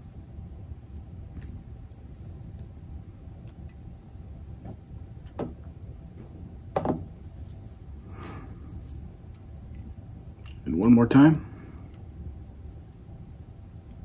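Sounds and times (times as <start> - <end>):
tools knocking on wooden table: 6.7 - 7.1.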